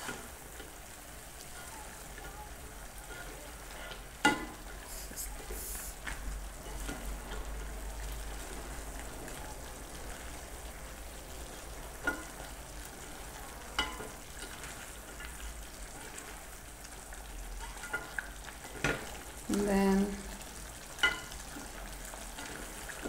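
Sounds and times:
meat sizzling in a pot: 0:00.0 - 0:23.0
spatula scraping a pot: 0:03.0 - 0:04.1.

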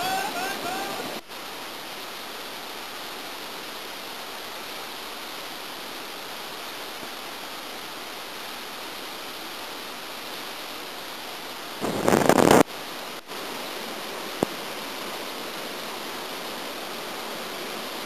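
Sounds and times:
person calling: 0:00.0 - 0:01.2
waterfall rushing: 0:00.0 - 0:18.0.

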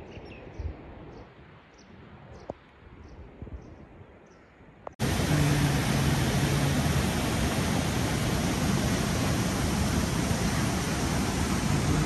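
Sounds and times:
rushing mountain water: 0:05.0 - 0:12.0.

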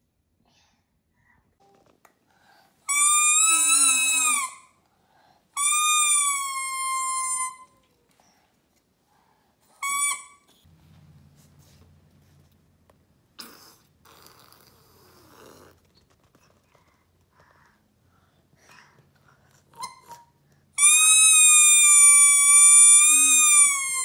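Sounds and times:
toy trumpet toots: 0:02.9 - 0:04.6, 0:20.8 - 0:24.0.

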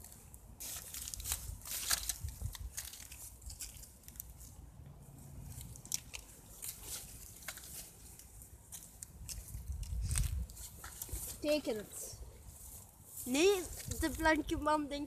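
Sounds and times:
dry reeds and grass rustling: 0:00.0 - 0:15.0
wind on microphone: 0:09.5 - 0:10.6.

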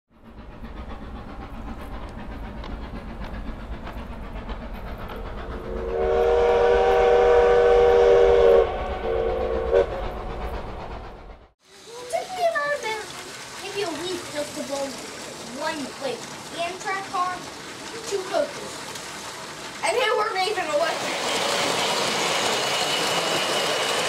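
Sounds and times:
train rumbling: 0:00.1 - 0:24.0
wheels clicking over rail joints: 0:00.2 - 0:05.6, 0:11.7 - 0:24.0
train horn blast: 0:05.6 - 0:10.4.

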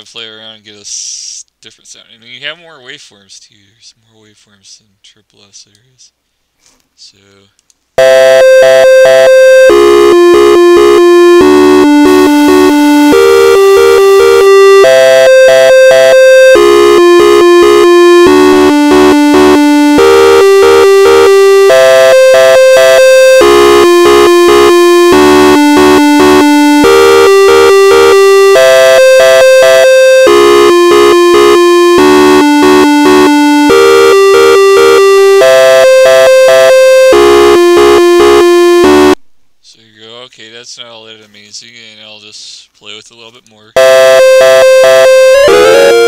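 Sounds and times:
synthesizer melody: 0:08.0 - 0:39.2, 0:43.8 - 0:46.0.

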